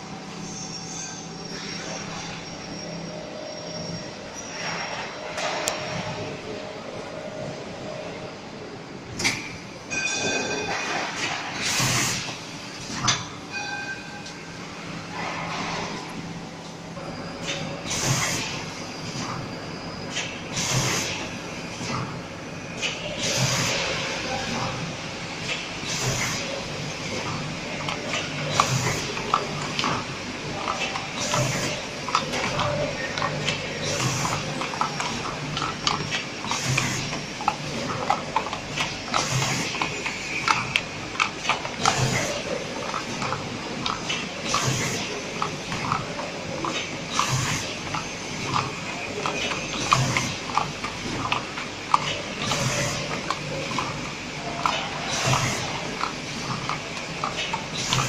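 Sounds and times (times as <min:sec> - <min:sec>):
packaging machine clatter: 0:25.5 - 0:58.0.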